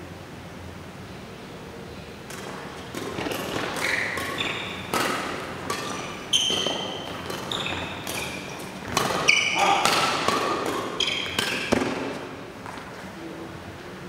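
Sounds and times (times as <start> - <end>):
racket striking shuttlecock: 2.2 - 12.8
shoes squeaking on court floor: 2.3 - 13.2.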